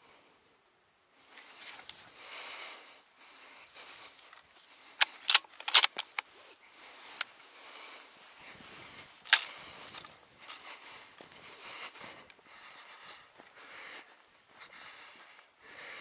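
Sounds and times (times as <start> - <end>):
rifle clicks and knocks: 5.0 - 6.3, 9.3 - 10.6.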